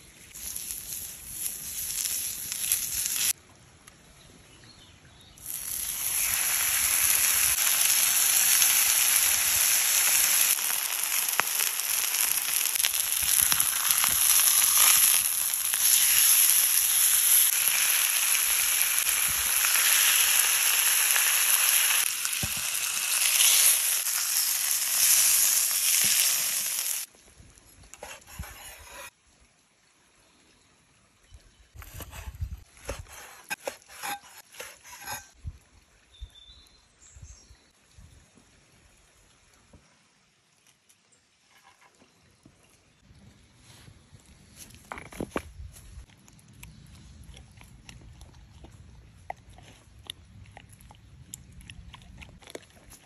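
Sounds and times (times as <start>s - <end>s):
steak sizzling on hot stone: 0.3s - 3.3s, 5.4s - 27.1s, 33.5s - 35.3s.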